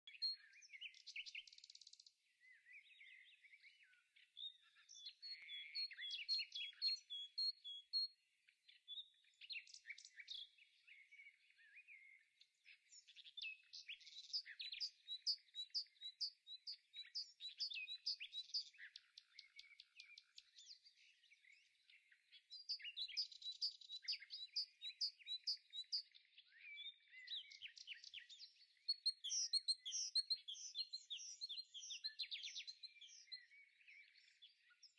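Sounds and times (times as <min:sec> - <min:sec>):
songbirds chirping and singing: 0:00.0 - 0:34.9.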